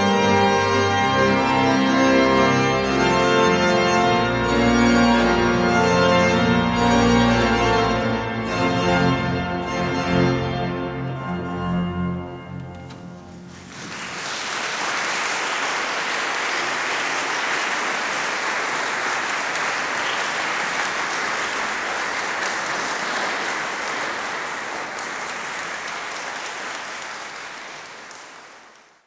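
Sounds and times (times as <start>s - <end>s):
audience applauding: 13.2s - 29.0s.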